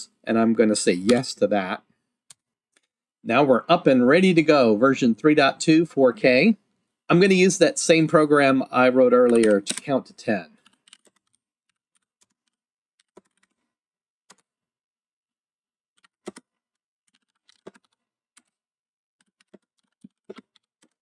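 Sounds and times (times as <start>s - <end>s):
computer keyboard typing: 10.6s - 13.6s, 14.3s - 14.5s, 16.0s - 18.6s, 19.2s - 21.0s.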